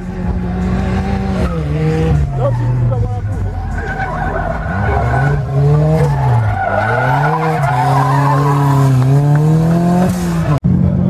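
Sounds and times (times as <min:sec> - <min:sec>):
racing buggy engine: 0:00.0 - 0:11.0
tyres squealing: 0:02.2 - 0:09.2.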